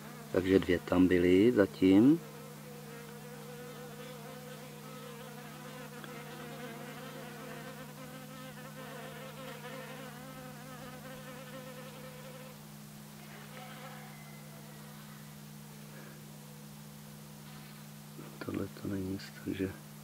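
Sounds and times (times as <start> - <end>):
honeybees buzzing: 0.0 - 12.6, 13.2 - 15.6
steady low hum: 0.0 - 20.0.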